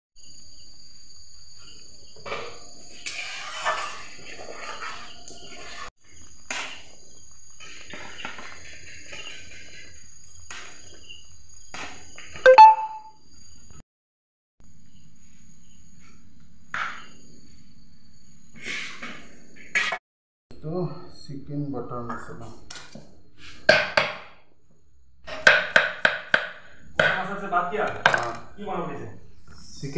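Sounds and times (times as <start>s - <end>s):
ladle scraping and stirring in pan: 2.2s - 5.9s
steady high-pitched tone: 12.5s - 13.1s.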